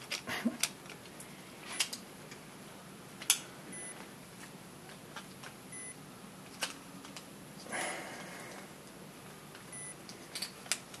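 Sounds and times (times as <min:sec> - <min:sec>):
faint high beeps: 0:03.7 - 0:04.0, 0:05.7 - 0:06.0, 0:09.7 - 0:10.0
plastic parts clicking and knocking: 0:06.5 - 0:07.3, 0:09.5 - 0:11.0.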